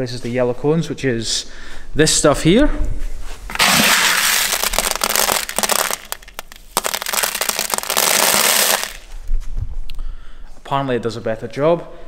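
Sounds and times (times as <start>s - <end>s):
plastic pieces pouring into bucket: 3.5s - 9.1s.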